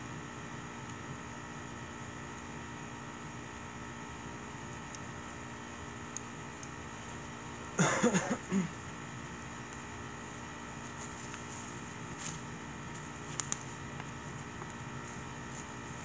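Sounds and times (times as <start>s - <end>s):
wood fire hissing and popping: 0.0s - 7.8s, 8.4s - 16.0s.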